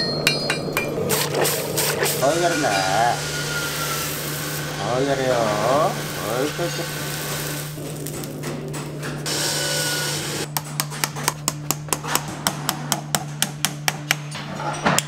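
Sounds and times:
low hum: 0:00.0 - 0:14.6
hiss: 0:01.1 - 0:08.2.

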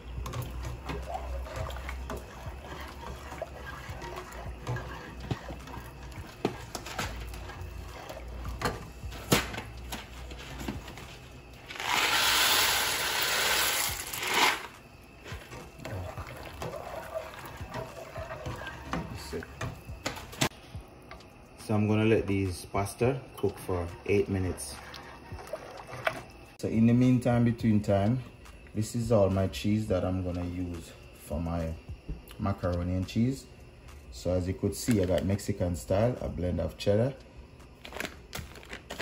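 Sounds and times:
spoon stirring pasta in pot: 0:00.0 - 0:11.1, 0:15.2 - 0:20.3.

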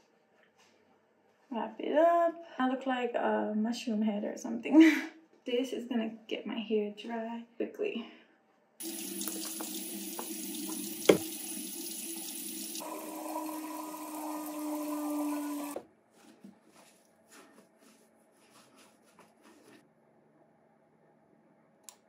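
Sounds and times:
water running from a tap: 0:08.8 - 0:15.8.

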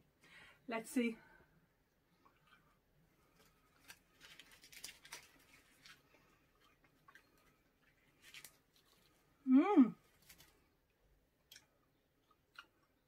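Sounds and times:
chewing with mouth smacks: 0:02.1 - 0:09.2, 0:11.4 - 0:13.0.

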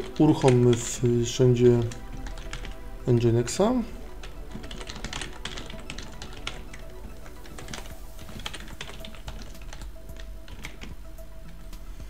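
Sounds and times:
computer keyboard typing: 0:00.0 - 0:11.8.

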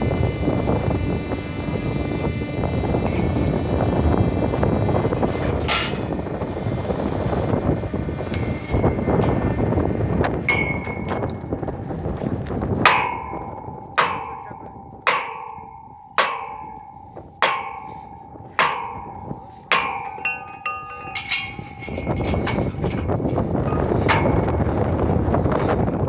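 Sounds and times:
truck engine running: 0:00.0 - 0:26.0
hammer striking metal pipe: 0:05.7 - 0:06.1, 0:10.5 - 0:11.4, 0:12.9 - 0:24.8.

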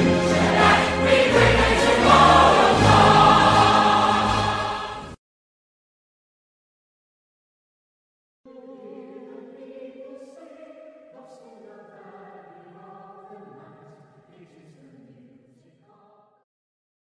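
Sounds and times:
choir singing held chords: 0:00.0 - 0:05.2.

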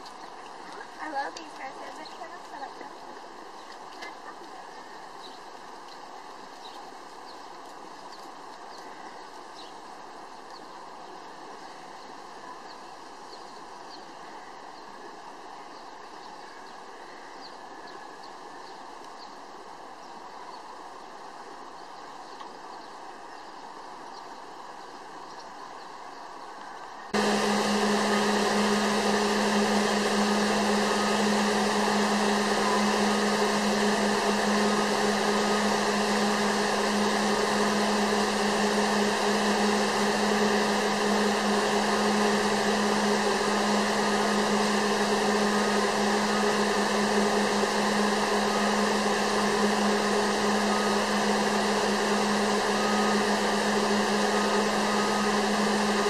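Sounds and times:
machine whirring with low hum: 0:27.0 - 0:56.0.

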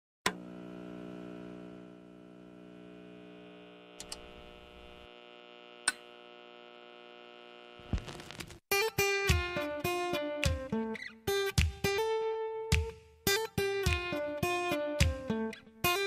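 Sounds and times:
electronic hum of held tones: 0:00.3 - 0:08.4
acoustic guitar music: 0:08.7 - 0:16.0.

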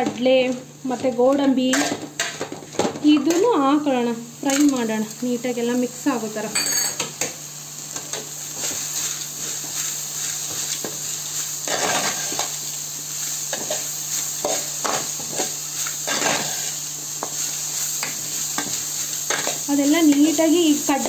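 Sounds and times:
vegetables sizzling in a pan: 0:00.0 - 0:21.0
metal spoon scraping a pan: 0:11.6 - 0:12.5, 0:13.5 - 0:19.6.

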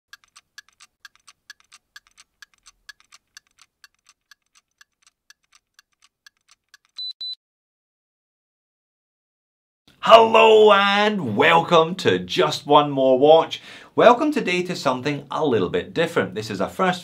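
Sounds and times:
clockwork ticking: 0:00.1 - 0:07.0
short high beeps: 0:07.0 - 0:07.4.

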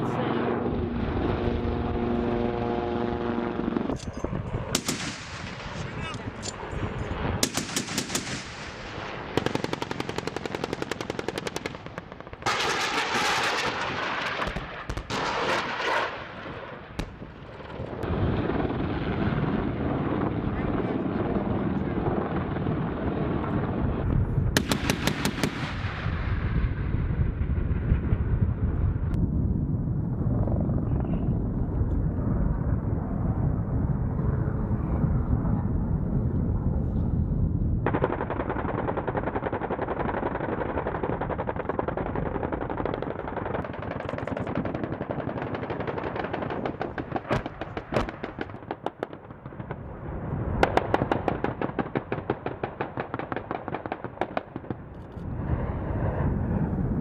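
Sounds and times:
engines rumbling: 0:00.0 - 0:07.6
helicopter rotors beating: 0:00.0 - 0:23.8
gatling cannon rapid fire: 0:04.7 - 0:06.1, 0:07.3 - 0:16.3, 0:24.6 - 0:26.1.

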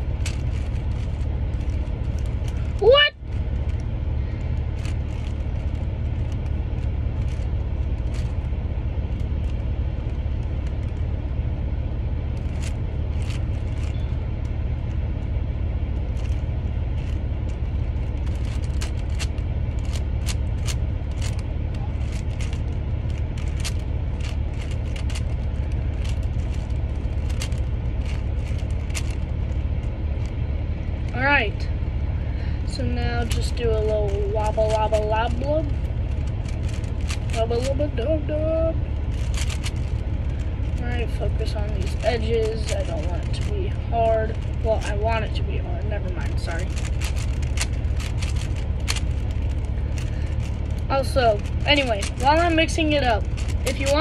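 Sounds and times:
low rumble: 0:00.0 - 0:54.0
speed cube clicking: 0:18.2 - 0:21.4, 0:22.0 - 0:29.2, 0:39.1 - 0:40.0, 0:46.6 - 0:49.3, 0:51.4 - 0:54.0.

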